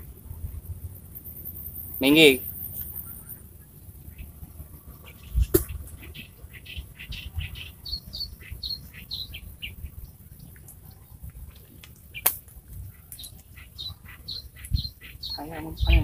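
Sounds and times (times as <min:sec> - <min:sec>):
small birds chirping: 0:01.2 - 0:16.0.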